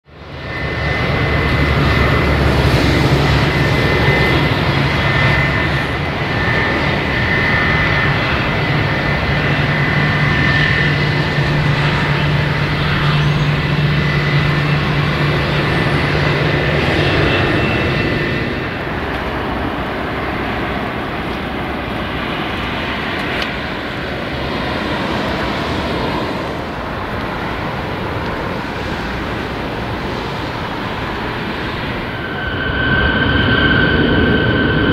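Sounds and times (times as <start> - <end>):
jet engines high whine: 0.0 - 34.9
distant engine noise: 0.1 - 34.9.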